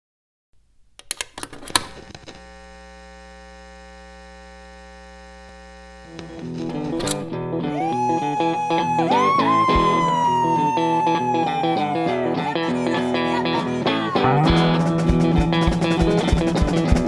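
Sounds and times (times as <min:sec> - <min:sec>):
electric buzzing hum: 0:00.6 - 0:10.5
sharp clicks: 0:01.0 - 0:02.4
electric guitar notes: 0:05.9 - 0:17.0.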